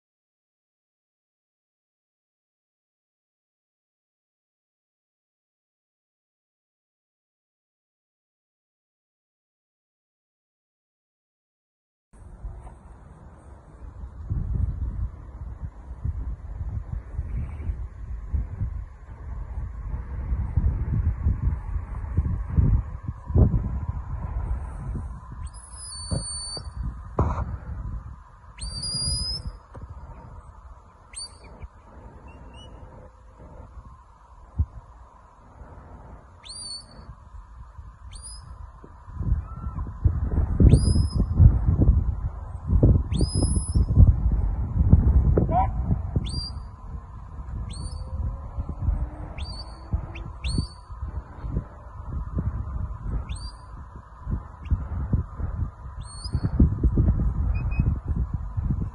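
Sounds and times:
wind buffeting microphone: 0:12.2 - 0:58.9
shepherd's whistle: 0:25.4 - 0:26.8, 0:28.6 - 0:29.6, 0:31.1 - 0:31.6, 0:36.4 - 0:37.1, 0:38.1 - 0:38.5, 0:40.7 - 0:41.3, 0:43.1 - 0:43.9, 0:46.2 - 0:46.7, 0:47.7 - 0:48.1, 0:49.4 - 0:50.9, 0:53.3 - 0:53.7, 0:56.0 - 0:56.6
high whistled notes: 0:25.4 - 0:26.9, 0:28.5 - 0:30.3, 0:31.1 - 0:33.0, 0:36.4 - 0:37.1.

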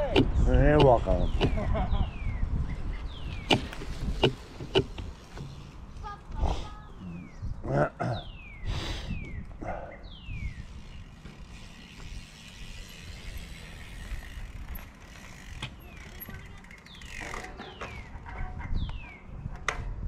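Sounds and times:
wind rumbling on microphone: 0:00.0 - 0:17.0, 0:17.9 - 0:20.0
bicycle freehub ticking: 0:10.3 - 0:18.1.

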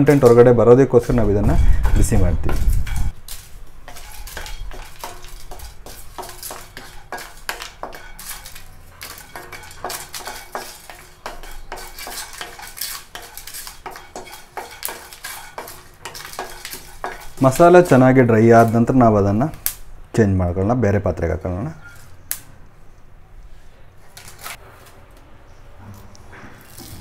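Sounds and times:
spatula scraping a pan: 0:00.0 - 0:18.9, 0:21.7 - 0:22.2
spices rattling in a pan: 0:01.8 - 0:19.0.

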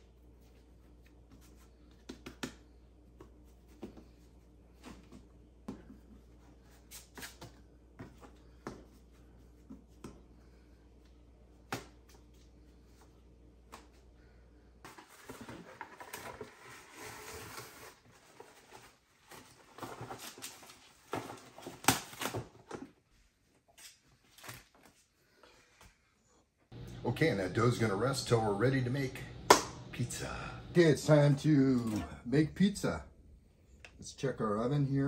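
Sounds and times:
hands patting dough: 0:00.9 - 0:04.2
faint low hum: 0:26.0 - 0:35.0.

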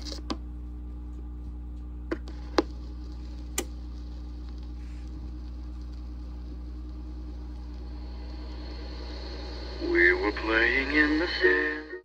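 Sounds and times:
low hum: 0:00.0 - 0:12.0
stylus clicks and pops on vinyl: 0:01.8 - 0:04.7.

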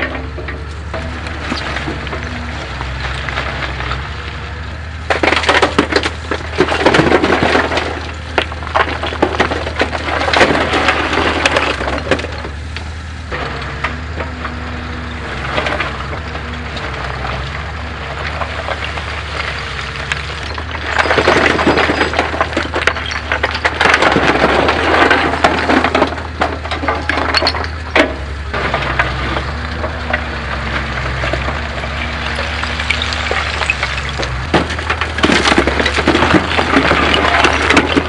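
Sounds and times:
excavator engine running: 0:00.0 - 0:38.0
rocks clattering and crunching: 0:00.0 - 0:38.0
bucket scraping through rocks: 0:15.1 - 0:38.0.

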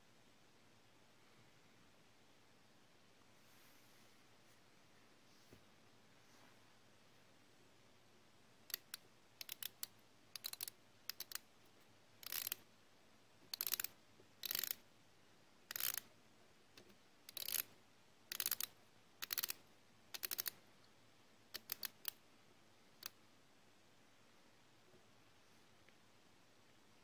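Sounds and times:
watch bezel ratcheting clicks: 0:08.7 - 0:11.4, 0:12.2 - 0:12.6, 0:13.5 - 0:14.8, 0:15.7 - 0:16.0, 0:17.3 - 0:17.7, 0:18.3 - 0:20.6, 0:21.6 - 0:22.2.

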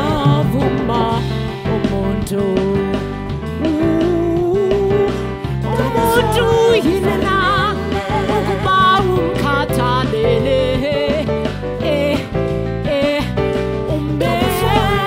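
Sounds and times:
gospel band playing: 0:00.0 - 0:15.0
woman singing lead: 0:00.0 - 0:15.0
backing vocals: 0:05.5 - 0:11.1, 0:14.0 - 0:15.0.

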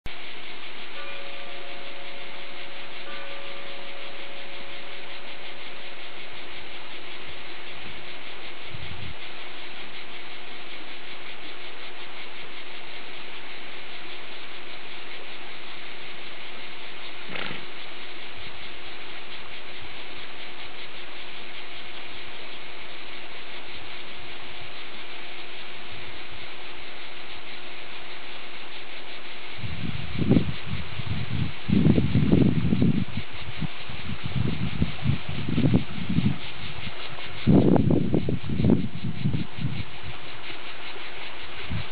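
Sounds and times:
faint hum: 0:00.1 - 0:41.9
steady hiss: 0:00.1 - 0:41.9
wind on microphone: 0:06.4 - 0:10.3, 0:17.0 - 0:18.0, 0:29.4 - 0:41.9.

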